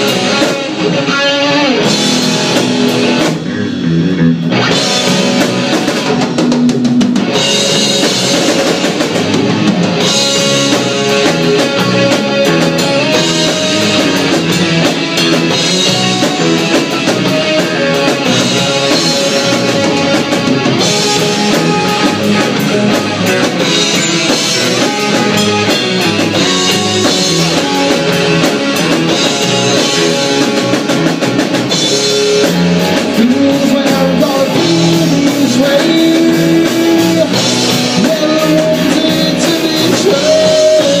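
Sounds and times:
live rock band playing: 0:00.0 - 0:41.0.

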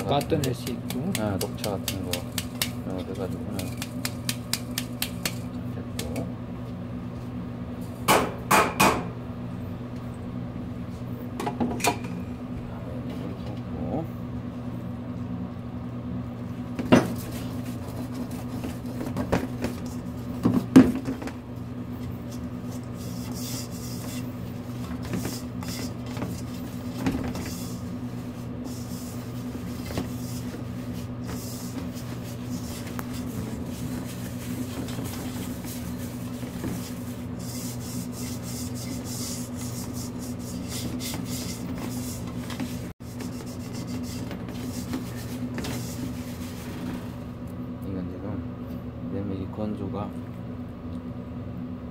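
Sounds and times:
hands rubbing flour in metal bowl: 0:00.0 - 0:05.5, 0:22.0 - 0:47.2
low electrical hum: 0:00.0 - 0:51.9.

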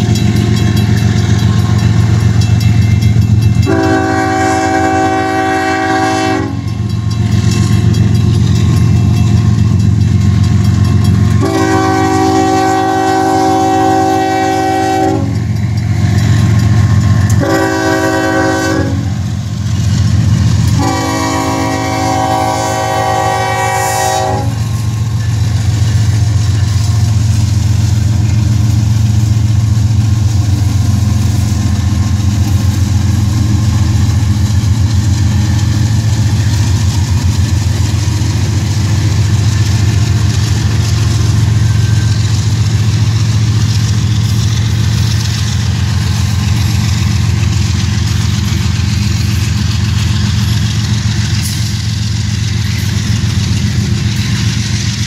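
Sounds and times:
train wheels on rails: 0:00.0 - 0:55.0
train horn: 0:03.6 - 0:06.8, 0:11.3 - 0:15.5, 0:17.2 - 0:19.3, 0:20.7 - 0:24.8.

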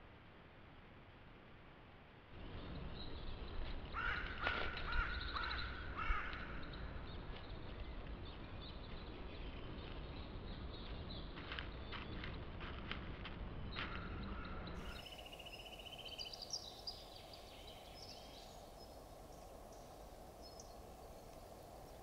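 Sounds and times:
faint outdoor hiss: 0:00.0 - 0:22.0
crow cawing: 0:03.9 - 0:06.5.

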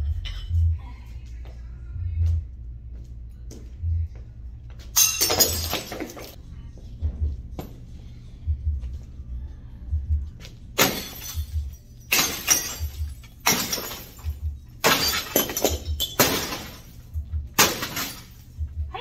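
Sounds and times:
music with low beat: 0:00.0 - 0:05.0, 0:06.4 - 0:12.1, 0:16.6 - 0:19.0
glass and plastic shattering: 0:05.0 - 0:06.4, 0:10.8 - 0:18.5
metal bar smashing television: 0:10.8 - 0:17.0, 0:17.6 - 0:18.4.

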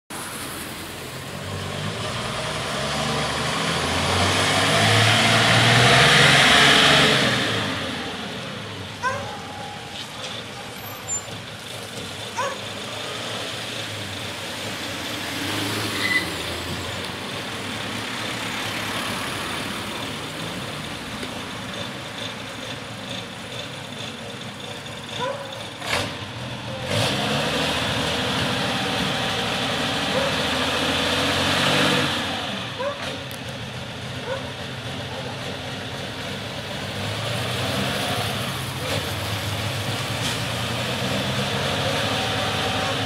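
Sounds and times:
diesel fire engine running: 0:00.2 - 0:43.0
short clicks and squeaks: 0:09.7 - 0:11.4.

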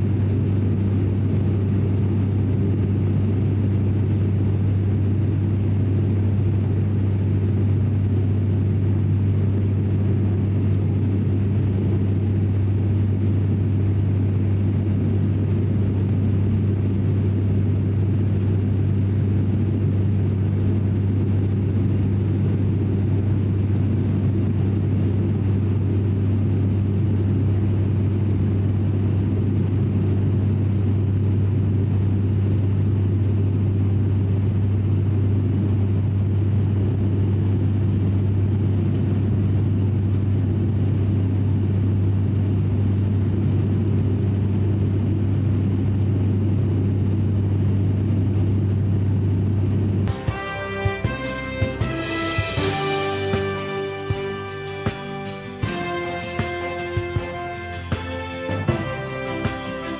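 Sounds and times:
faint high whine: 0:00.0 - 0:59.9
turboprop cabin drone: 0:00.0 - 0:59.9.

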